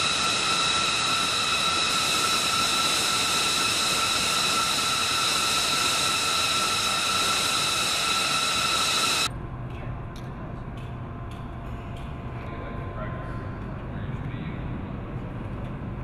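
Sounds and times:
rush of air: 0.0 - 9.3
jet turbine whine: 0.0 - 16.0
low hum: 0.0 - 16.0.

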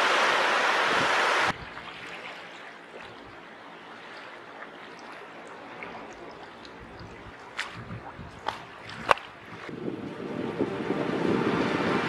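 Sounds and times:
small waves lapping on stony shore: 0.8 - 9.8
water trickling and dripping: 1.5 - 12.0.

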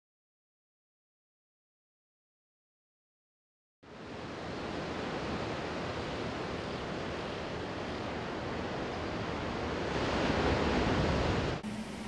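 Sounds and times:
ocean surf rushing: 3.9 - 12.0.

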